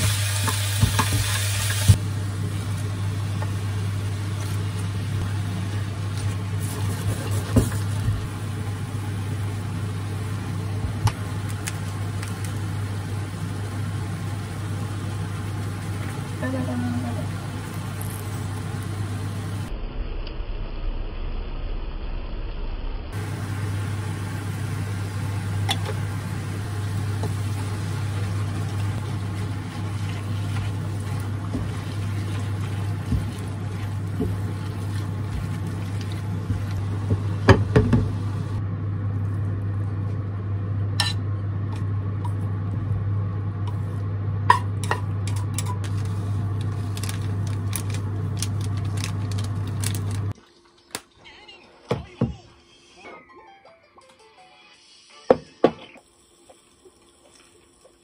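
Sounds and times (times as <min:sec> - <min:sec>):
hob and pan hum and hiss: 0:00.0 - 0:19.7, 0:23.2 - 0:38.6.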